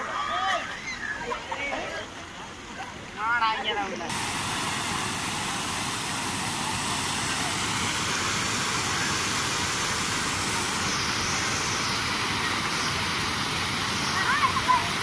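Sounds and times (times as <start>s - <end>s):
water spilling over weir: 4.1s - 15.0s.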